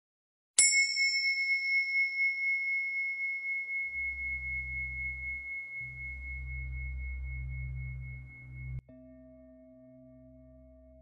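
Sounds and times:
bell-like metal tone ringing: 0.6s - 11.0s
low hum: 3.9s - 11.0s.

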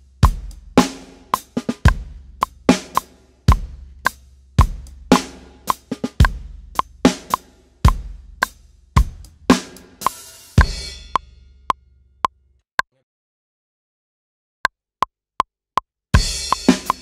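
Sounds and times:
rock drum kit groove: 0.0s - 11.3s, 16.2s - 17.0s.

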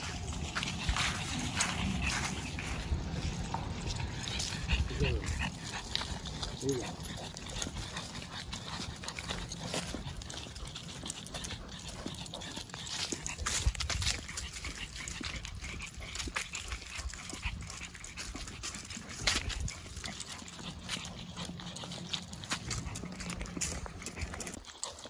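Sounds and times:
dog panting heavily: 0.0s - 25.0s
footsteps on gravel and leaves: 0.0s - 25.0s.

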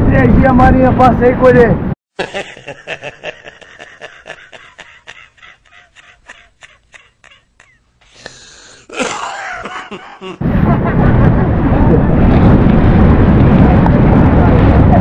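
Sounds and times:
wind buffeting microphone: 9.6s - 15.0s.

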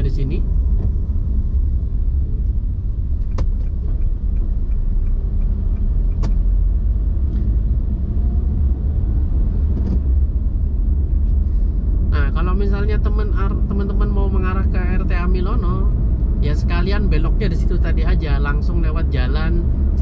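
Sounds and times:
car driving rumble: 0.0s - 20.0s
turn signal ticking: 2.8s - 6.6s.

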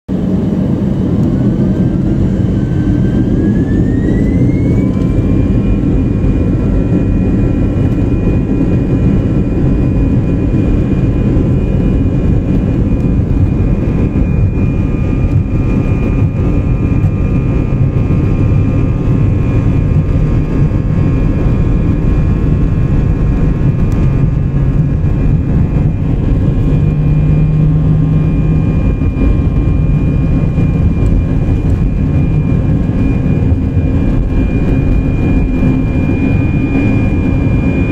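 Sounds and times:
heavy rumble: 0.1s - 37.9s
jet engine spooling up: 0.1s - 37.9s.

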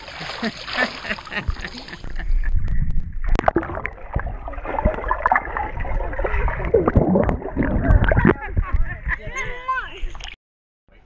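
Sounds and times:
pool water splashing: 0.0s - 2.2s, 3.3s - 8.5s
underwater churning with bubble pops: 2.7s - 8.8s.

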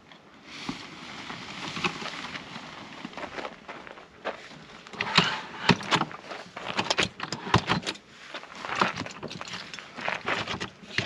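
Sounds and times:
metal ladder clicking and rattling: 4.9s - 11.0s.

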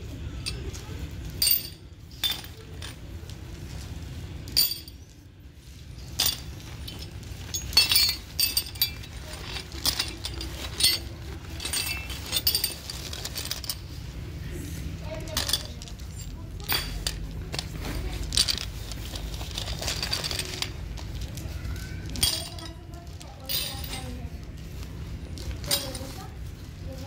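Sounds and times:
steady low hum: 0.0s - 27.0s
metal bolts clinking: 1.4s - 3.0s, 4.5s - 5.1s, 6.0s - 13.9s, 15.3s - 20.8s, 22.1s - 24.2s, 25.6s - 26.1s.

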